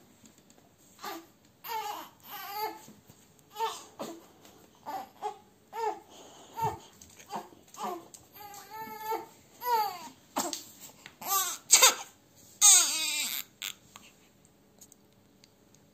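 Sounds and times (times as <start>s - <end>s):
baby crying and babbling: 1.0s - 2.8s, 3.5s - 4.2s, 4.8s - 10.5s, 11.2s - 13.8s.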